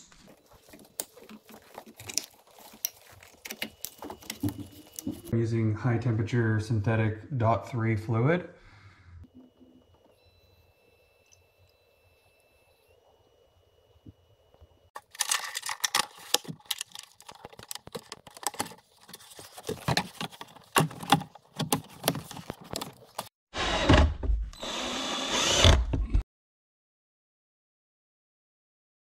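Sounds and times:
cordless drill running: 24.6 - 25.9.

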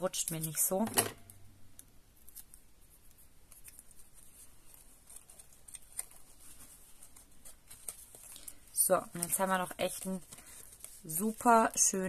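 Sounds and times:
paper rustling: 2.2 - 12.0.

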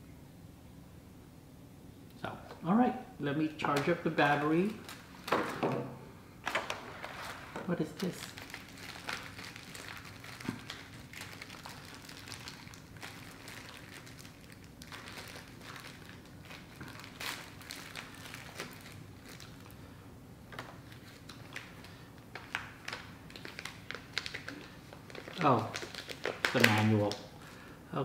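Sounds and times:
faint room hum: 0.0 - 28.0
paper rustling and crinkling: 6.4 - 19.8, 20.5 - 27.2.

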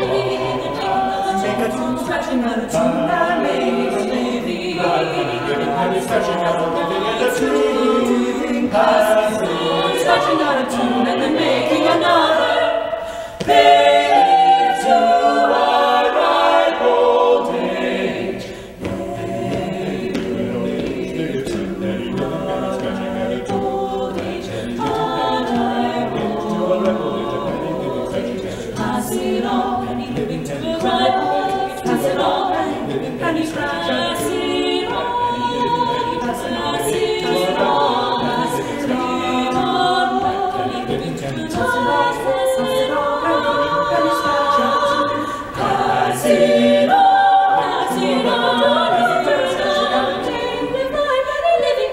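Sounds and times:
a cappella choir singing: 0.0 - 51.9.

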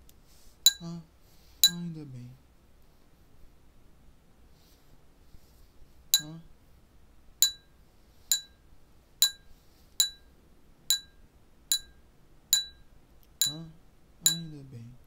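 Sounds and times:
water glasses struck ringing: 14.3 - 14.5.

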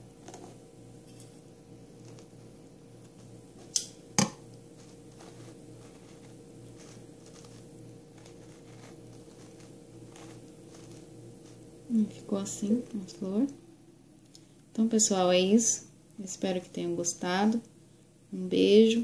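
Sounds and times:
low steady hum: 0.0 - 19.0
rustling of fabric petals: 4.8 - 11.6.

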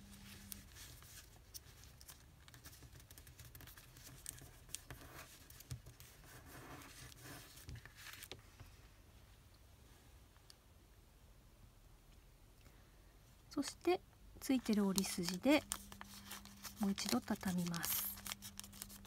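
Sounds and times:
paper being creased by hand: 15.2 - 19.0.

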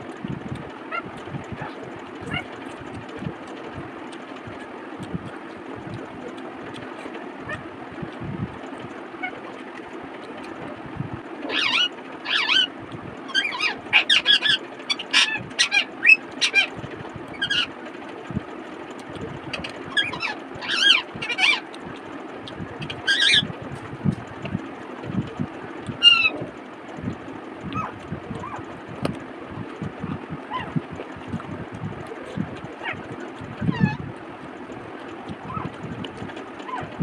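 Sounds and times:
low hum: 0.0 - 37.0
chirping bird calls: 0.9 - 3.0, 11.5 - 17.8, 19.5 - 21.8, 22.5 - 23.6, 25.8 - 26.5, 27.7 - 28.8, 29.6 - 30.8, 32.1 - 34.1, 35.2 - 35.8.

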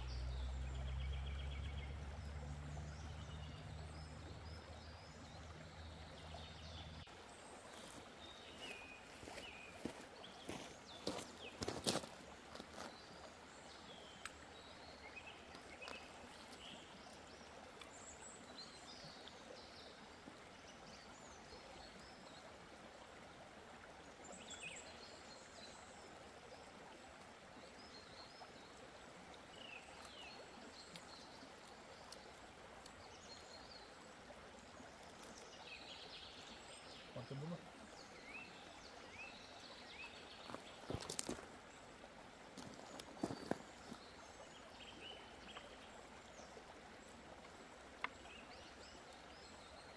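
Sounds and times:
small birds chirping: 0.0 - 20.0, 29.4 - 42.0, 42.6 - 49.9
river flowing over stones: 0.0 - 49.9.

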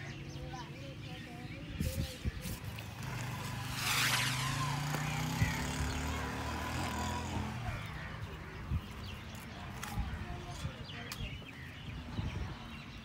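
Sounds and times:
vehicle engine passing by: 2.8 - 8.5.

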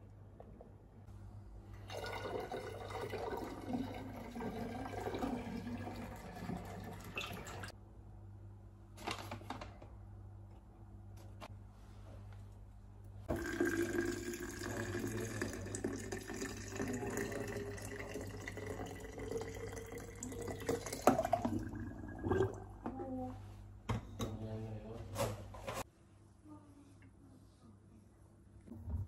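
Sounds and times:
liquid pouring into glass carafe: 1.8 - 7.7, 13.3 - 22.8.

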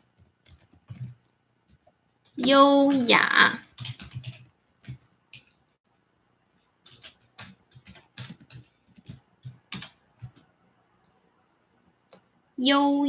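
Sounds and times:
keyboard key clicks: 7.0 - 10.4.

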